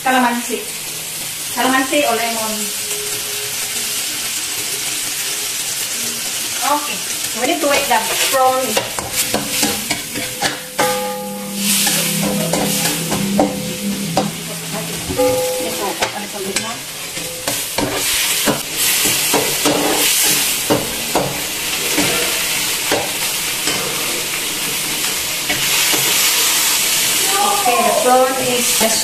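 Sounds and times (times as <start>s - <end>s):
prawns sizzling in hot oil: 0.1s - 11.3s.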